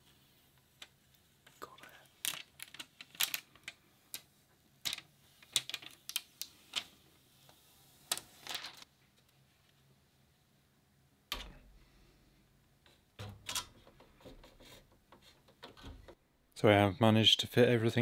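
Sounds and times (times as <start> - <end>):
plastic film crackling: 1.6 - 4.2, 4.8 - 6.9, 8.0 - 8.9
plastic film rustle: 1.6 - 4.2, 4.8 - 7.0, 8.0 - 8.9.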